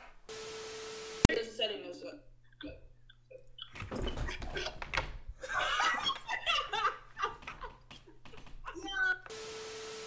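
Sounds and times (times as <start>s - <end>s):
young man laughing hard: 5.4s - 8.9s.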